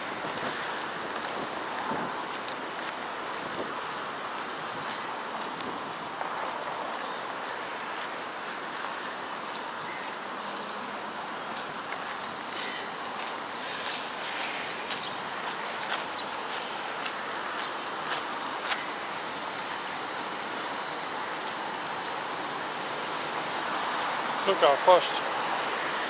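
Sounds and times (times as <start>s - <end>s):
steady background noise: 0.0s - 26.0s
small birds chirping: 6.2s - 25.7s.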